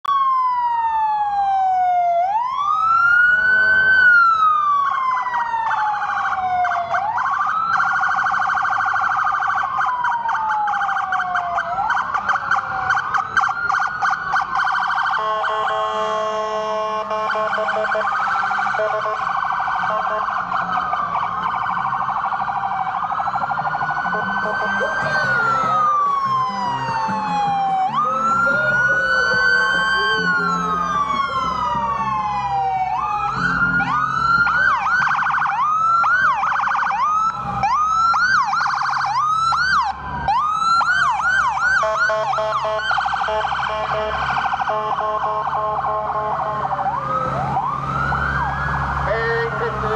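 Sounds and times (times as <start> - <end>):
emergency vehicle sirens: 0.0 - 49.9.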